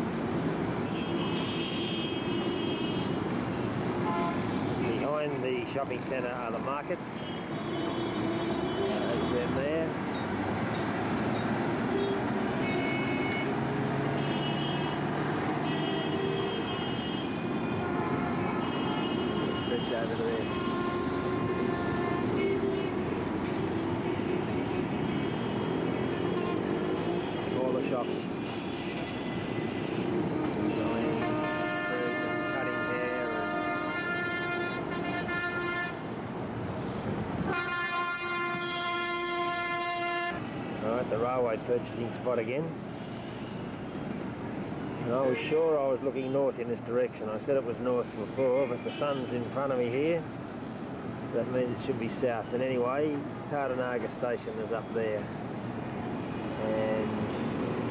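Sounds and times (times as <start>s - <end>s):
street traffic din: 0.0s - 57.9s
multi-toned horn blasts: 15.6s - 23.0s, 23.8s - 36.0s, 37.5s - 40.5s.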